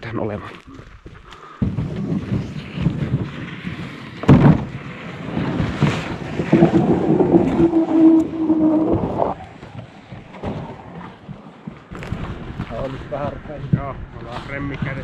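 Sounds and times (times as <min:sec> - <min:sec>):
canoe hull scraping on wood: 0:01.6 - 0:15.0
hull groaning squeal: 0:06.4 - 0:09.6.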